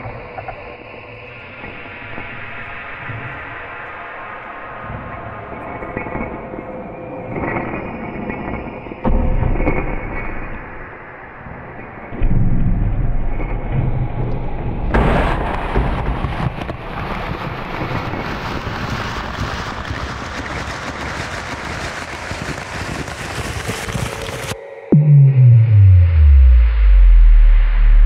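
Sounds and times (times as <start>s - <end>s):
deep low rumble: 12.2s - 21.1s, 24.1s - 28.0s.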